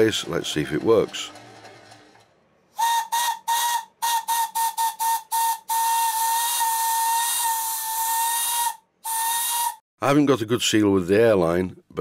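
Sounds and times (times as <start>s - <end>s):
steam whistle toots and blast: 2.7s - 9.8s.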